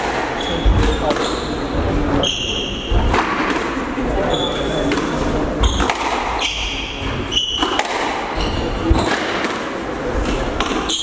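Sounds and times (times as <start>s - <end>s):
squash ball hitting rackets and walls: 0.0s - 11.0s
shoes squeaking on wooden floor: 0.4s - 3.0s, 8.3s - 9.3s.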